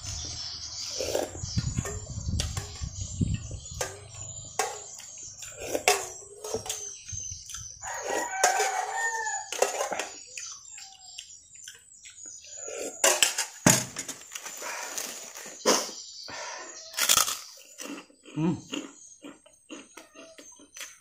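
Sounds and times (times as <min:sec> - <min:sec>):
metal spoon scraping a pot: 0:00.8 - 0:07.0, 0:07.9 - 0:10.2, 0:12.6 - 0:13.6
rooster crowing: 0:07.8 - 0:09.6.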